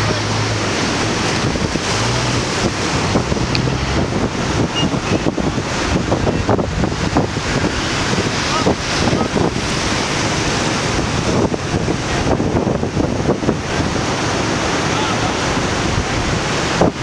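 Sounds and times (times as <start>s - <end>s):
people talking: 0.0s - 0.6s, 8.4s - 9.6s, 14.7s - 16.2s
ocean surf: 0.0s - 17.0s
wind buffeting microphone: 0.0s - 17.0s.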